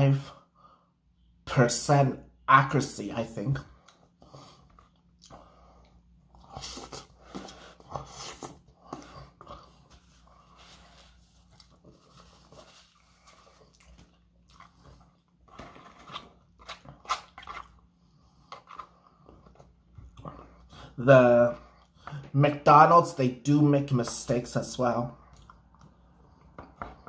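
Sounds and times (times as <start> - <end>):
chewing fries: 3.8 - 20.9.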